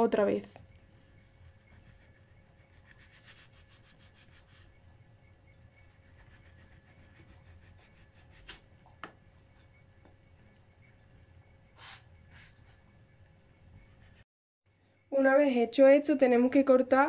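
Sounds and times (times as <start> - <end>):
knife sawing through apple: 2.7 - 4.7, 5.9 - 8.6.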